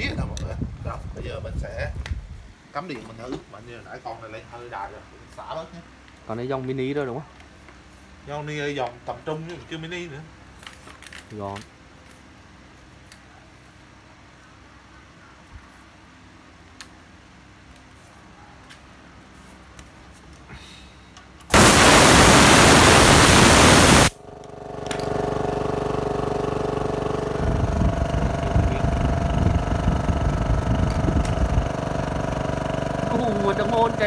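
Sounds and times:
compressed air hissing: 21.5 - 24.1
compressor motor humming: 21.5 - 24.1, 25.1 - 34.0.

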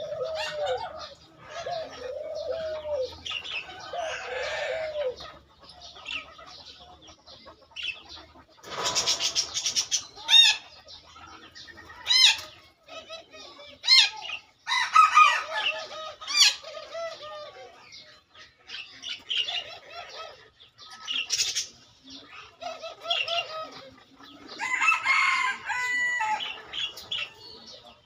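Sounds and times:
birds chirping: 0.0 - 28.0
chickens clucking and calling: 0.0 - 28.0.

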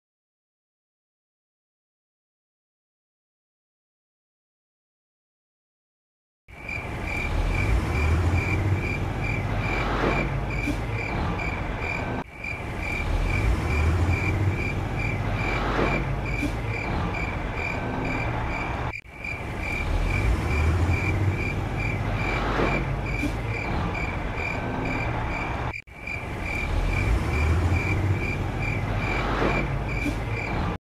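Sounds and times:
distant traffic rumble: 6.5 - 30.8
crickets chirping: 6.6 - 30.6.

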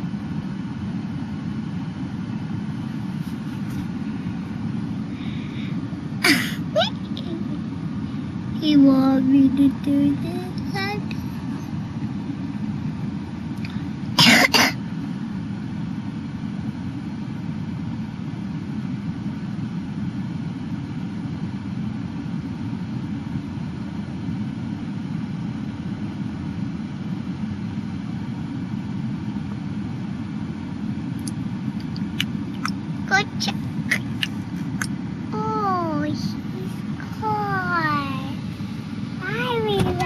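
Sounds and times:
vehicle engine running: 2.5 - 14.2, 31.0 - 40.0.

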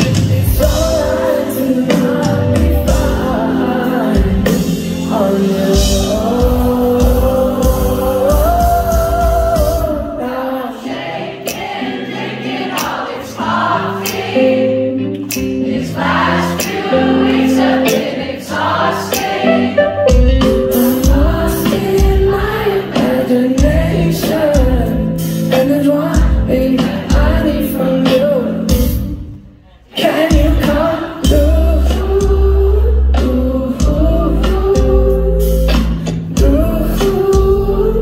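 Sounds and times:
person singing: 0.0 - 12.8, 16.0 - 38.0
electric guitar: 13.3 - 29.5.

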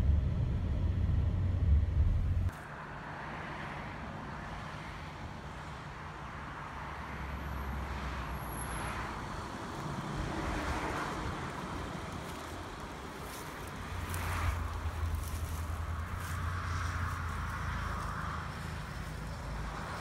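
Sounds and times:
road traffic passing: 0.0 - 20.0.

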